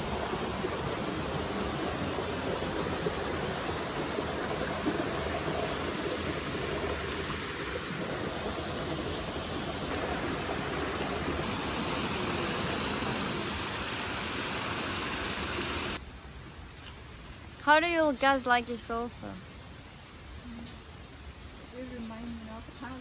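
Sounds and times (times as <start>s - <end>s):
stream rushing over rocks: 0.0s - 16.0s.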